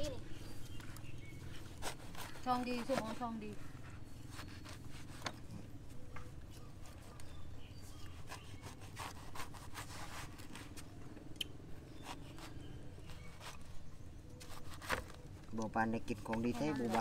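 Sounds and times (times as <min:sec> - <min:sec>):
knife scraping and slicing rind: 0:00.7 - 0:03.5, 0:04.1 - 0:05.6, 0:06.8 - 0:10.8, 0:16.3 - 0:17.0.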